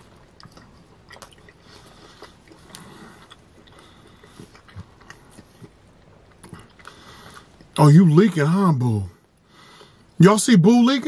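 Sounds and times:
man chewing food: 0.0 - 7.8, 9.2 - 10.2.

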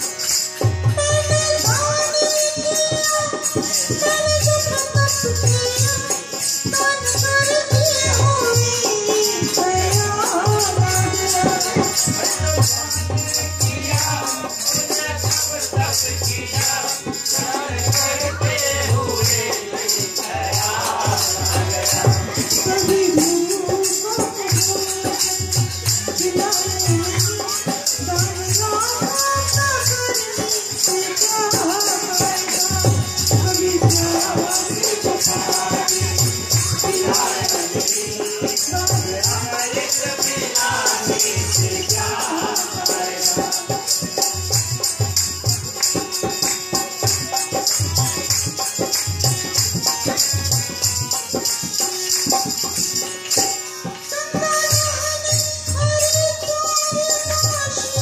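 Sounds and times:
woman singing: 0.0 - 44.5, 54.1 - 58.0
dholak drum beat: 0.0 - 58.0
harmonium: 0.0 - 58.0
tambourine jingling: 0.0 - 58.0.

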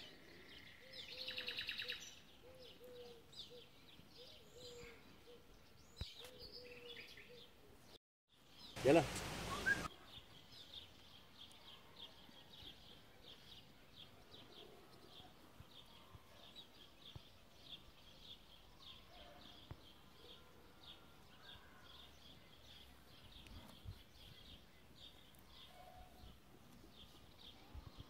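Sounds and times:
faint bird chirping: 0.0 - 28.0.

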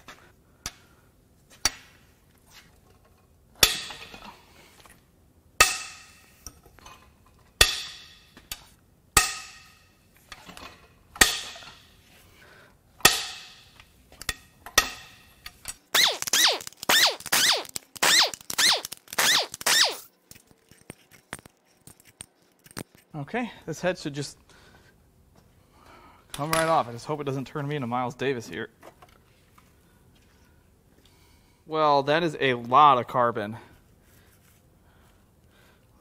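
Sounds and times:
squeaky rattle: 15.9 - 20.1.

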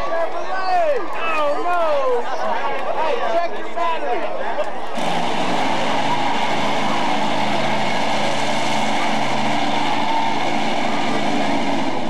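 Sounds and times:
pickup truck engine running: 4.9 - 12.0.

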